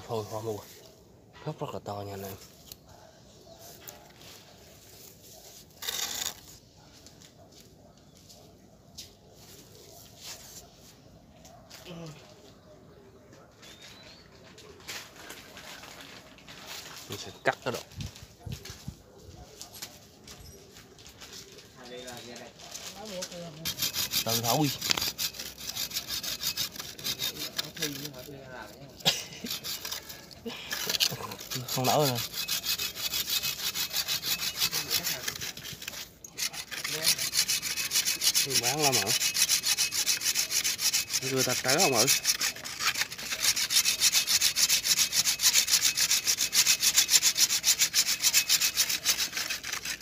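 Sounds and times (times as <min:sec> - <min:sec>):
hand saw rasping through root: 0:05.6 - 0:06.5, 0:22.1 - 0:50.0.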